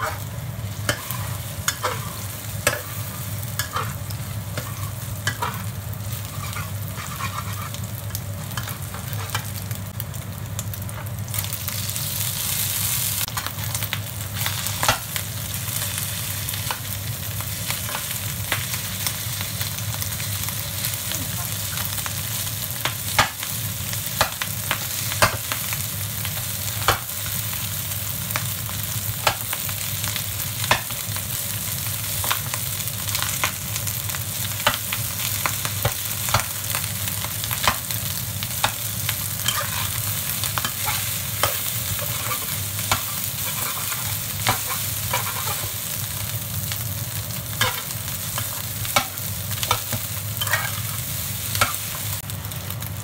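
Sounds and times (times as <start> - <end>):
food sizzling: 0.0 - 53.0
metal spatula scraping a wok: 0.9 - 4.0, 6.2 - 7.9, 39.4 - 45.7, 50.4 - 51.0.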